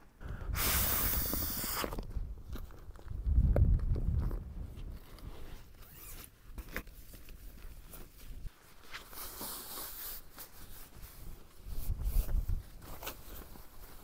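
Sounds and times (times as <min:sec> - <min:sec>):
wind rumble on microphone: 0:00.2 - 0:05.7, 0:11.6 - 0:12.8.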